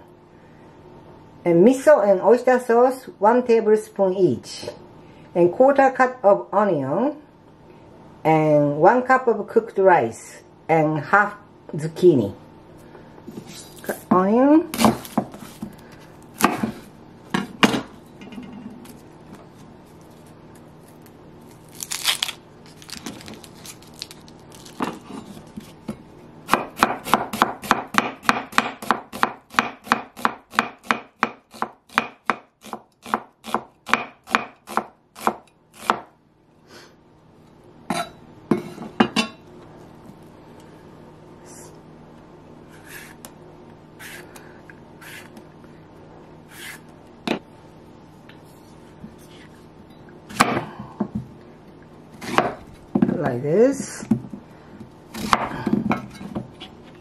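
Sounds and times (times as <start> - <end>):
knife chopping on wooden board: 14.8 - 15.4, 16.4 - 16.8, 26.5 - 36.1, 55.2 - 55.7.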